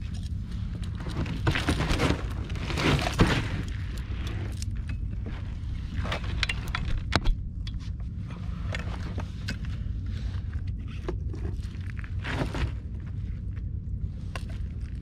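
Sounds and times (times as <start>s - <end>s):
steady low rumble: 0.0s - 15.0s
net and gear scraping: 0.6s - 4.8s.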